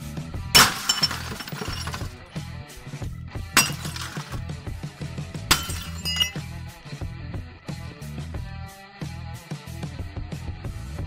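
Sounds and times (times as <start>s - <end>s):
sledgehammer smashing glass screen: 0.6s - 2.1s, 3.6s - 4.4s, 5.5s - 6.4s
glass shattering and tinkling: 0.6s - 2.2s, 3.6s - 4.4s, 5.5s - 6.5s.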